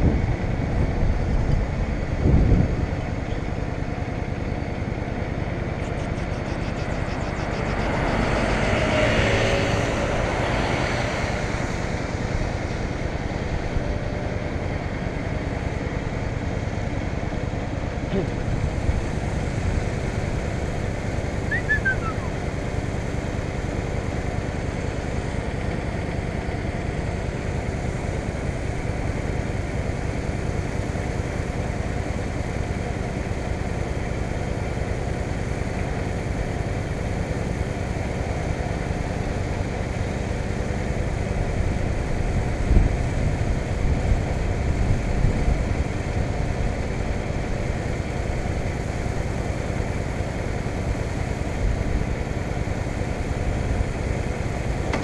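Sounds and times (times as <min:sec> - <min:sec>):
motorcycle engine idling: 0:03.0 - 0:07.9, 0:12.9 - 0:42.6.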